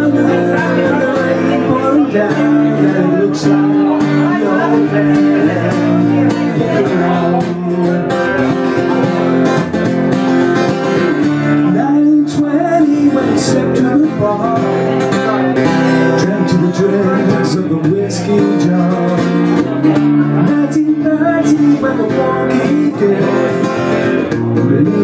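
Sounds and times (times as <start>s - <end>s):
acoustic guitar strumming: 0.0s - 25.0s
man singing: 0.0s - 25.0s.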